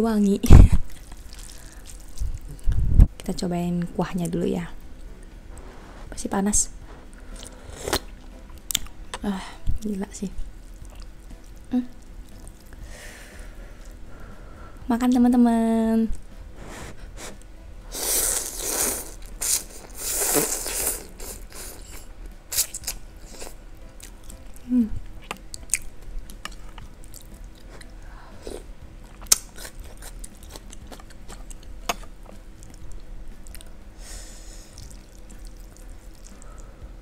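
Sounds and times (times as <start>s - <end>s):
chewing: 0.9s - 2.8s, 10.7s - 12.8s, 18.5s - 33.7s, 34.7s - 36.7s
person slurping noodle soup: 16.6s - 22.0s.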